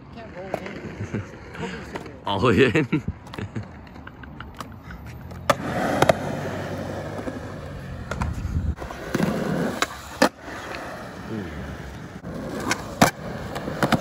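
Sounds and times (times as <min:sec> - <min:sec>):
skateboard wheels rolling on concrete: 0:00.0 - 0:14.0
skateboard clacking on ground: 0:00.1 - 0:01.0, 0:03.2 - 0:10.8, 0:12.2 - 0:14.0.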